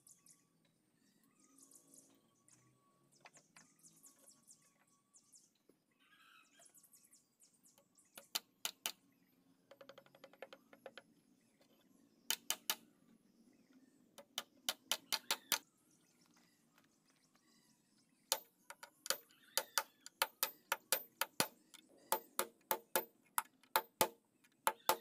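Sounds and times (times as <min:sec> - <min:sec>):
hammer tapping nails into wood: 0:18.3 - 0:25.0.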